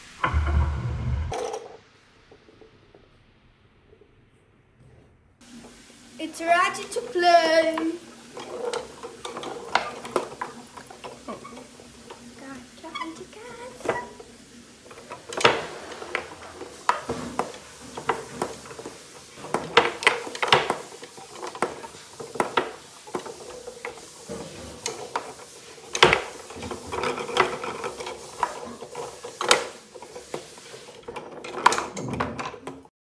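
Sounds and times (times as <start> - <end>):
foosball clacks and knocks: 7.8 - 32.9.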